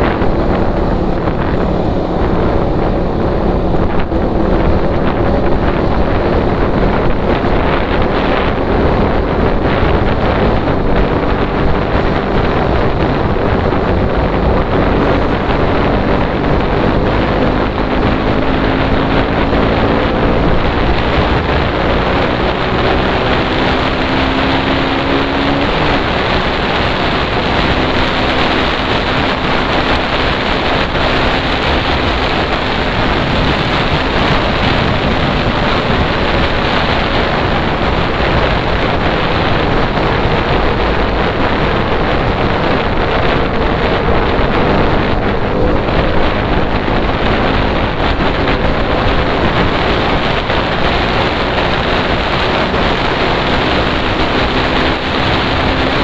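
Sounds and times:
motorcycle engine accelerating: 0:00.0 - 0:56.0
wind buffeting microphone: 0:00.0 - 0:56.0.

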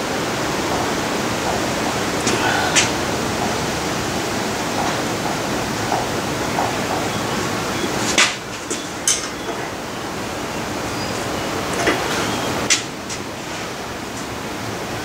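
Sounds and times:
workshop background hiss: 0:00.0 - 0:15.0.

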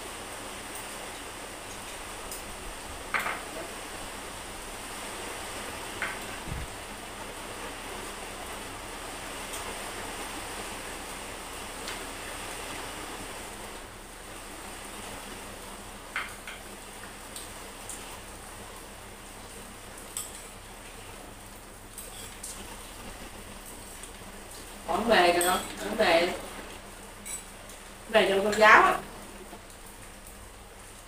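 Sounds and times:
steady rushing hiss: 0:00.0 - 0:31.0
utensils clinking on ceramic bowls: 0:25.3 - 0:26.0.

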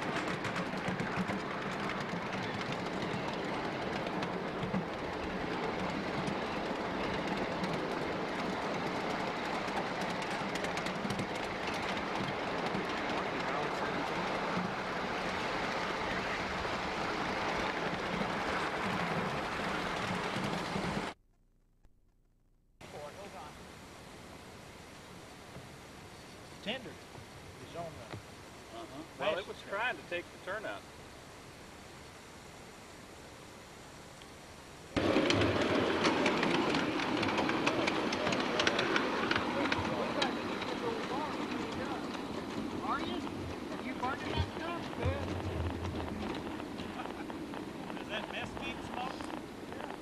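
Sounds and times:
train cars rumbling and rattling: 0:00.0 - 0:21.2, 0:35.0 - 0:50.0.

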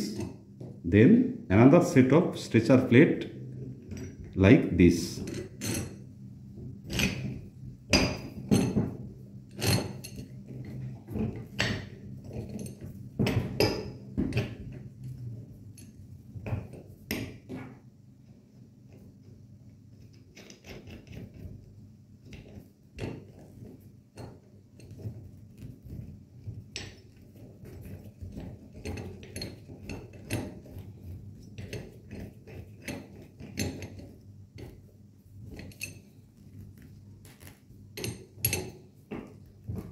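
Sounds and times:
metal parts clinking together: 0:37.3 - 0:38.8.

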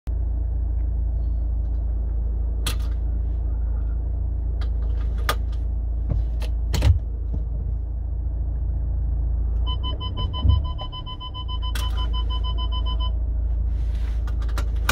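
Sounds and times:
engine idling: 0:00.1 - 0:14.9
dashboard warning chime: 0:09.6 - 0:13.2.

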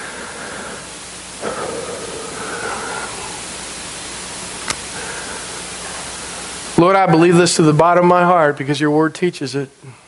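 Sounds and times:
recording hiss: 0:00.0 - 0:10.0
sharp click: 0:04.6 - 0:04.9.

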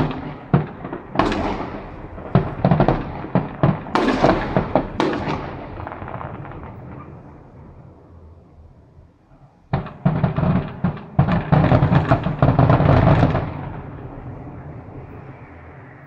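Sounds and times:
fireworks bangs and crackles: 0:00.0 - 0:07.8, 0:09.6 - 0:15.8
fireworks rumble: 0:00.0 - 0:16.0.

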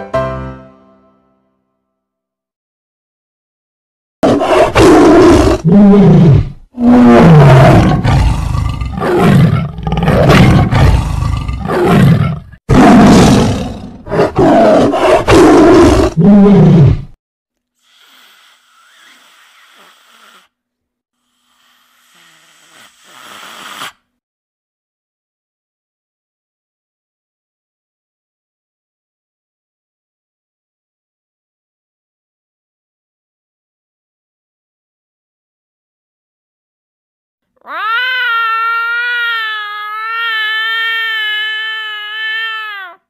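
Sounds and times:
big cat roaring: 0:04.2 - 0:17.2.

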